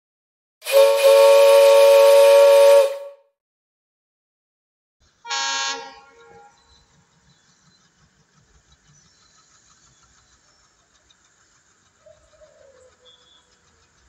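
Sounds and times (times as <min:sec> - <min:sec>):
train horn two-tone blast: 0:00.6 - 0:03.3, 0:05.2 - 0:06.6.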